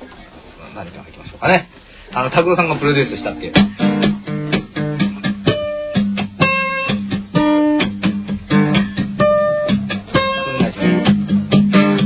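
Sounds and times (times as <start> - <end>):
acoustic guitar playing: 1.5 - 12.0.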